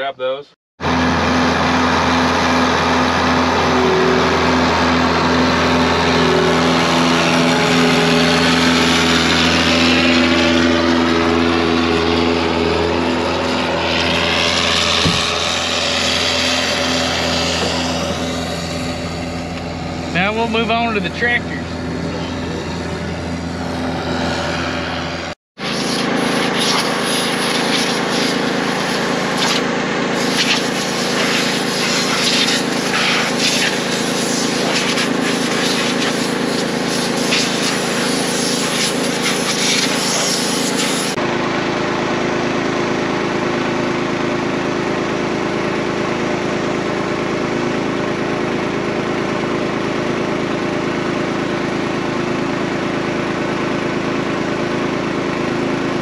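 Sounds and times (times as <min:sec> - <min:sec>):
tractor engine running: 0:00.2 - 0:56.0.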